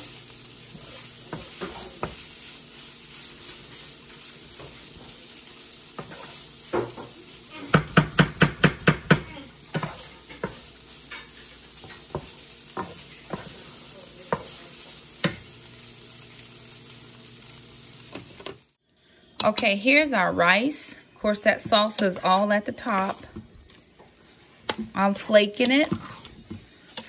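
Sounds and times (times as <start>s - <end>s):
wooden spatula scraping a skillet: 0.0s - 15.5s, 21.5s - 27.0s
food sizzling: 0.0s - 27.0s
spatula knocking against pan: 7.7s - 10.6s.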